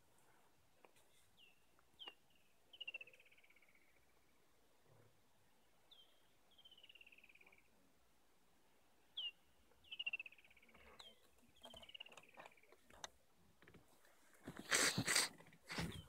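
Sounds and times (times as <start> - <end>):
soft clicks and rustles: 10.8 - 16.0.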